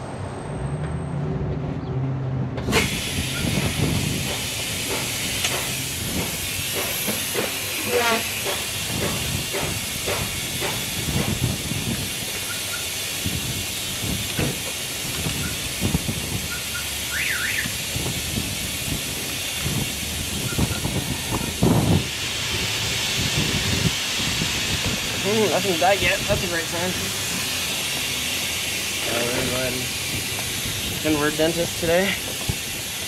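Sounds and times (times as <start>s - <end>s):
oil extractor hissing: 2.7s - 33.0s
knocks from hose and tools: 3.6s - 11.4s, 14.3s - 15.4s.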